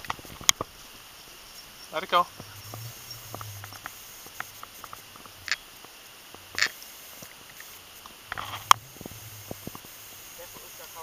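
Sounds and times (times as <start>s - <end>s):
small clicks: 6.5s - 9.9s.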